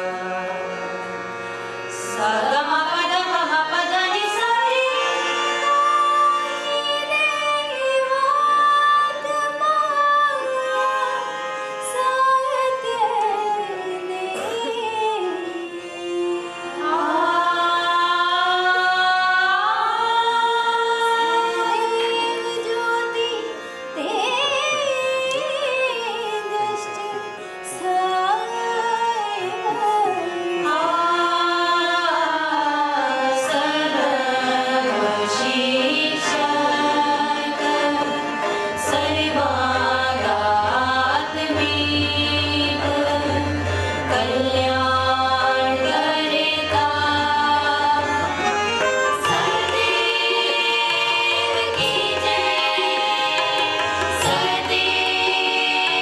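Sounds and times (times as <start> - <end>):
harmonium accompaniment: 0.0 - 56.0
women singing together: 2.0 - 11.2, 11.9 - 23.3, 28.0 - 56.0.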